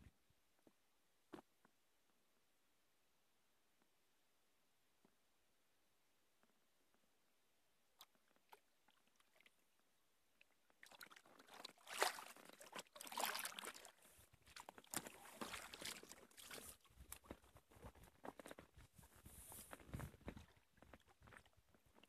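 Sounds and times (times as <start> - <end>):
paddle splashing water: 10.7 - 17.3.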